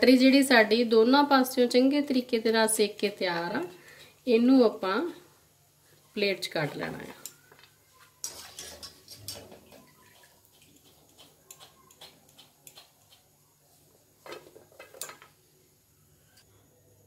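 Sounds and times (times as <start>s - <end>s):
wire skimmer clinking against iron pan: 8.2s - 12.9s.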